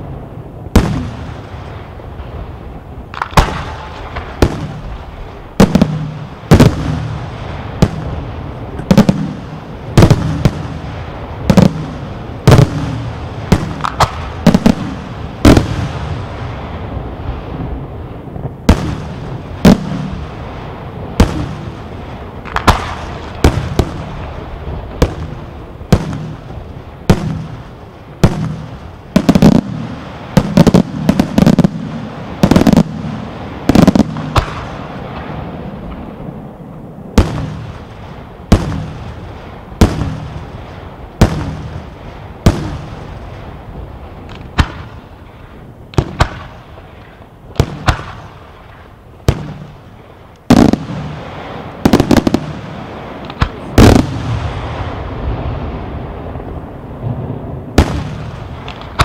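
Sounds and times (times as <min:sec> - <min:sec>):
firework shells bursting: 0:12.5 - 0:15.9, 0:22.4 - 0:24.2.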